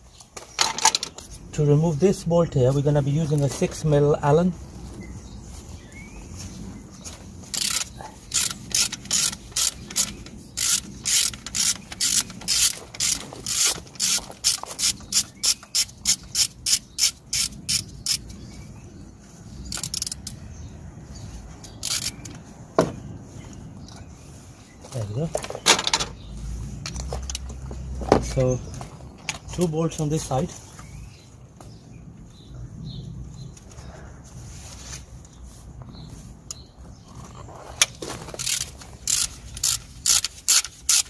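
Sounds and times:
ratchet wrench clicking: 0:07.5 - 0:18.4, 0:19.7 - 0:20.4, 0:21.6 - 0:22.4, 0:38.3 - 0:41.0.

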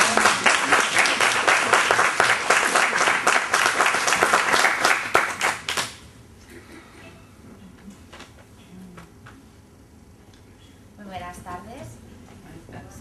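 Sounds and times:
audience applause: 0:00.0 - 0:06.0.

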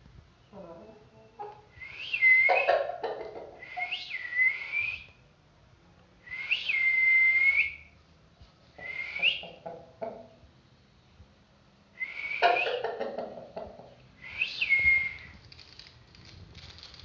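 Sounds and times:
person whistling: 0:01.8 - 0:02.7, 0:03.6 - 0:05.1, 0:06.3 - 0:07.9, 0:08.8 - 0:09.4, 0:12.0 - 0:12.8, 0:14.2 - 0:15.4.

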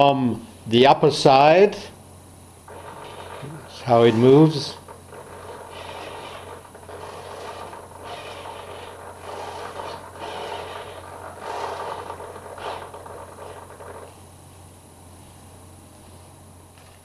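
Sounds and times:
servo whirring: 0:02.7 - 0:14.2.

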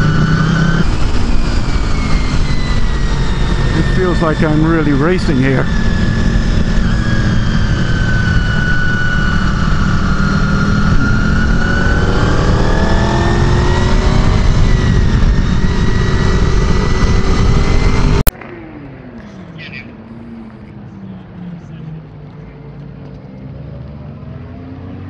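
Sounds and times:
wind rush on microphone: 0:00.0 - 0:18.3
motorcycle engine running hard: 0:00.0 - 0:24.5.

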